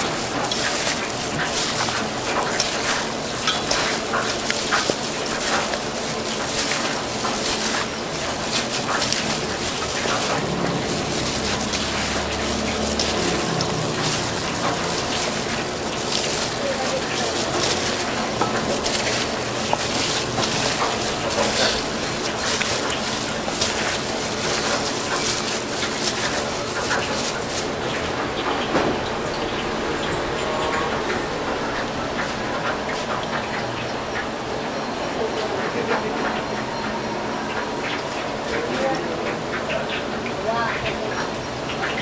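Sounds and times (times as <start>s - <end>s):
food sizzling in hot oil: 0.0s - 28.4s
cooking utensils clattering: 0.0s - 36.7s.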